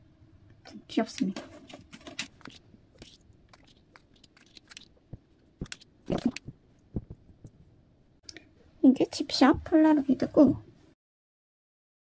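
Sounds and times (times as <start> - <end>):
rustling and crinkling packaging: 1.3 - 5.0.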